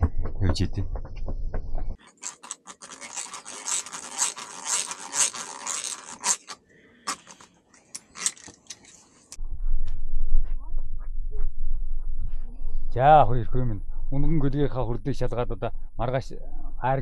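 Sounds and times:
scratching and scraping: 0.0s - 9.4s.

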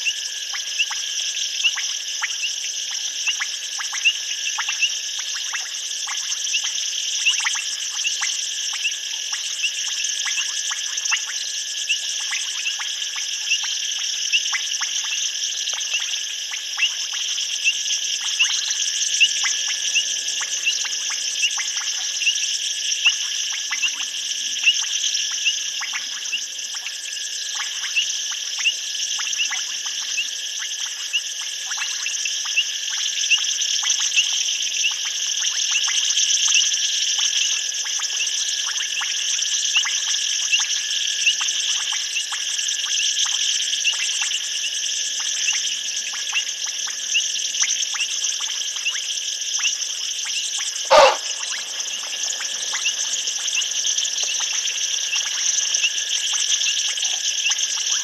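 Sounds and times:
insects shrilling: 50.3s - 57.9s
short sharp chirps: 50.9s - 51.3s.

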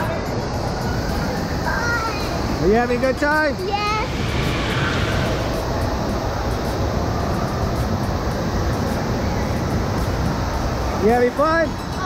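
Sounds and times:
water rushing and churning: 3.6s - 7.2s.

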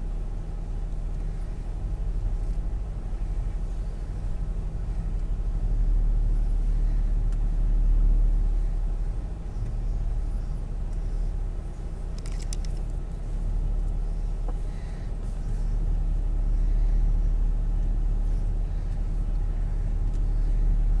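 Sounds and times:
vehicle engine rumble from cab: 0.0s - 21.0s
short rattle of clicks: 12.1s - 13.0s.

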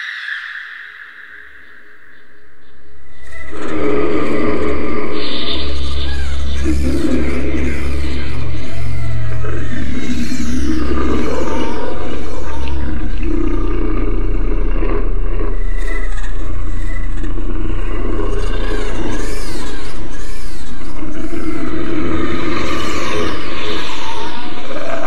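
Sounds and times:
low drone: 0.0s - 25.0s
growling roars: 3.4s - 20.2s, 20.9s - 25.0s.

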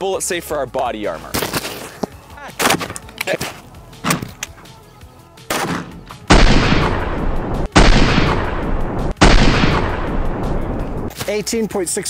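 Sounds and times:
rifle shots: 5.5s - 10.8s
loud drawn-out boom: 6.3s - 11.1s.

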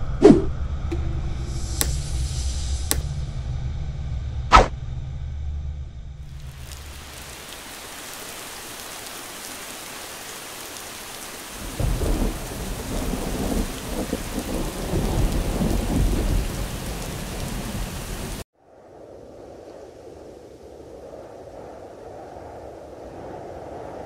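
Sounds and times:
rain hissing: 6.2s - 18.4s
thunder rumbling: 6.2s - 24.0s.

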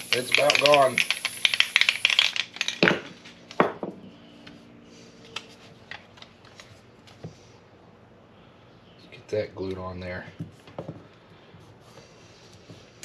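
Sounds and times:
aerosol can hissing and sputtering: 0.0s - 2.8s.

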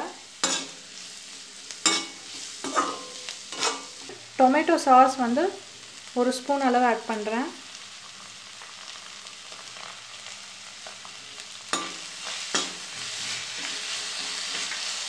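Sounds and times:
vegetables sizzling in oil: 0.0s - 15.0s
spatula scraping pan: 0.4s - 0.8s, 1.8s - 4.2s.

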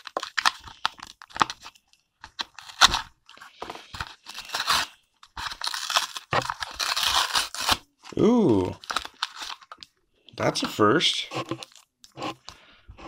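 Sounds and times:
cardboard ripping and crinkling: 0.0s - 1.7s, 2.4s - 3.1s, 3.8s - 7.8s, 8.6s - 9.8s.

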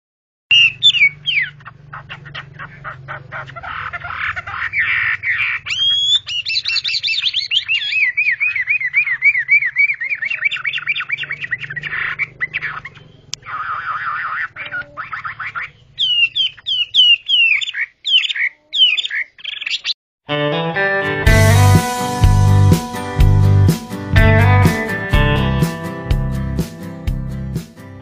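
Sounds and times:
bird singing whistled song: 0.5s - 1.6s, 5.7s - 13.3s, 15.6s - 19.9s.

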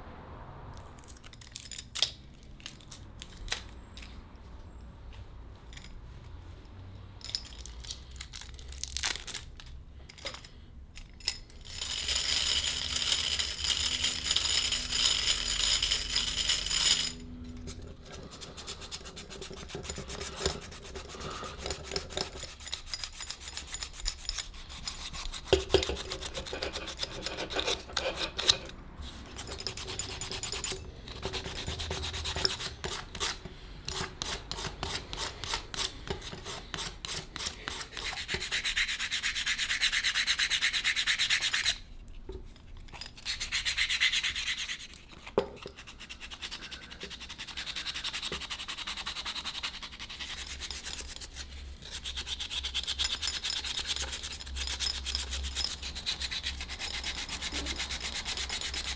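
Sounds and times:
sandpaper rubbing on wood: 18.3s - 28.4s, 30.2s - 41.8s, 43.2s - 44.9s, 45.8s - 53.0s.

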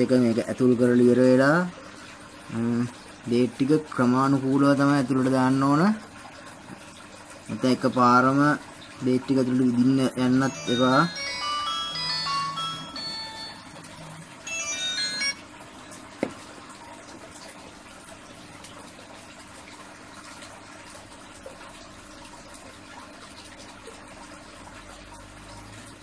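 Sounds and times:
electronic jingle melody: 10.4s - 15.6s.

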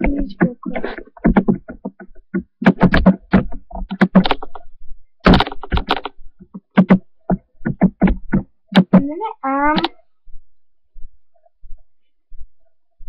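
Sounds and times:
typing on a computer keyboard: 1.2s - 4.6s, 5.3s - 9.0s.

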